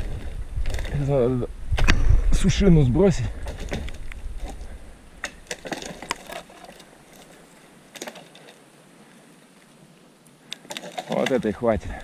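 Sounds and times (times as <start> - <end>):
faint wind rumble: 0.0 - 6.1
twigs and snow snapping: 3.4 - 8.6.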